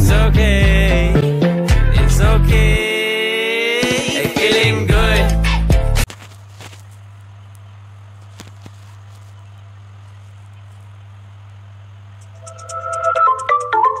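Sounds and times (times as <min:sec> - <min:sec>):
low steady hum: 0:06.1 - 0:13.4.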